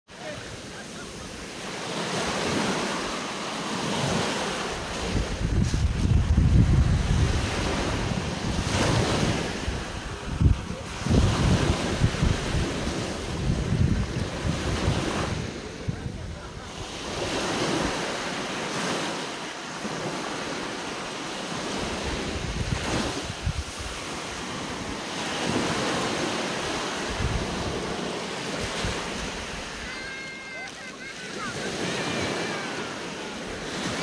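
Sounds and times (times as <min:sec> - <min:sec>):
small waves breaking on sand: 0:00.1 - 0:34.0
wind buffeting microphone: 0:02.1 - 0:19.1, 0:21.5 - 0:30.0.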